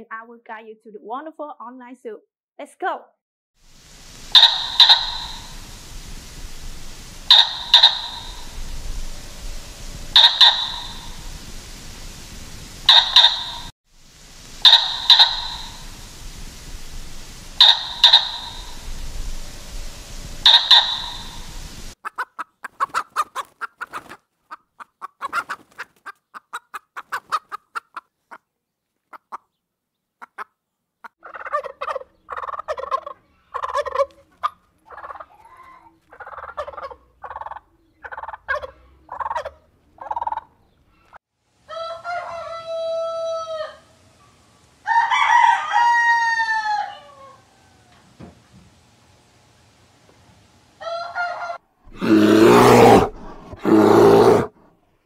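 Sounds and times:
turkey calling harshly: 0:04.3 - 0:05.7, 0:07.2 - 0:08.6, 0:10.1 - 0:11.3, 0:12.9 - 0:13.7, 0:14.6 - 0:16.0, 0:17.6 - 0:18.9, 0:20.4 - 0:24.2, 0:31.2 - 0:43.8, 0:50.8 - 0:51.6
chicken clucking: 0:04.4 - 0:05.5, 0:07.3 - 0:08.4, 0:10.2 - 0:11.2, 0:12.9 - 0:13.7, 0:14.6 - 0:15.8, 0:17.6 - 0:18.8, 0:20.4 - 0:21.3, 0:22.0 - 0:28.5, 0:30.2 - 0:41.1
rooster crowing: 0:07.3 - 0:08.4, 0:20.4 - 0:21.5, 0:41.7 - 0:44.0, 0:44.8 - 0:48.2, 0:50.8 - 0:54.5.

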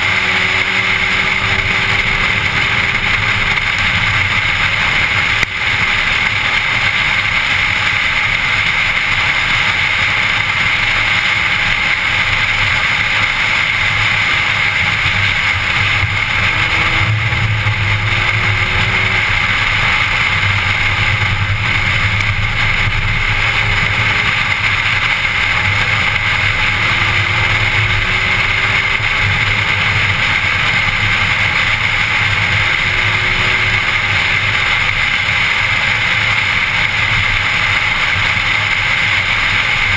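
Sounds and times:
engine note rising in pitch: 0:00.0 - 0:07.0, 0:14.9 - 0:36.8
car interior road drone: 0:00.0 - 0:39.9.

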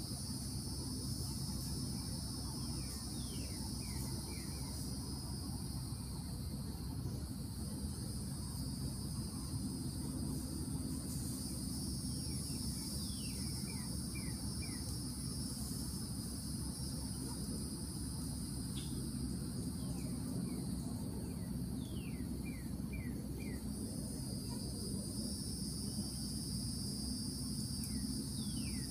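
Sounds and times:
insects buzzing: 0:00.0 - 0:28.9.

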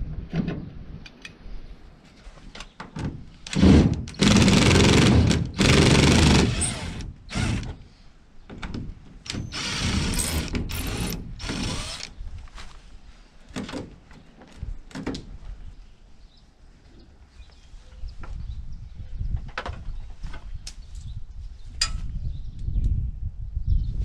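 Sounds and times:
cordless drill running: 0:03.5 - 0:07.7, 0:09.3 - 0:12.1.

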